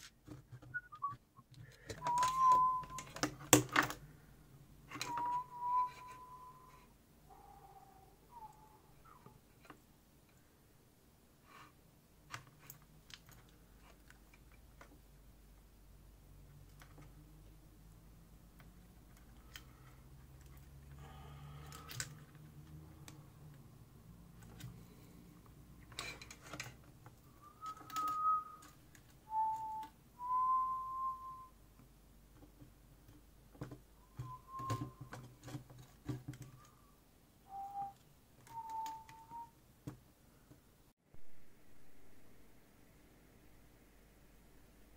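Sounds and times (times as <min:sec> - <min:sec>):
person whistling short notes: 0:00.6 - 0:03.1, 0:05.0 - 0:07.5, 0:08.3 - 0:09.2, 0:27.4 - 0:31.6, 0:34.0 - 0:35.1, 0:37.4 - 0:39.6
wires and circuit board clicking: 0:21.6 - 0:23.6.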